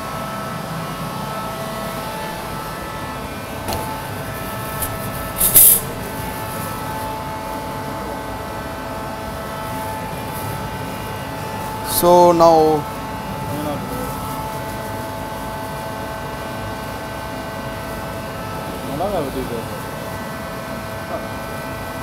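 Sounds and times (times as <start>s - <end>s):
exhaust hood and burners droning: 0.0s - 12.0s
steady hum: 0.0s - 22.0s
short loud hiss: 4.5s - 6.1s.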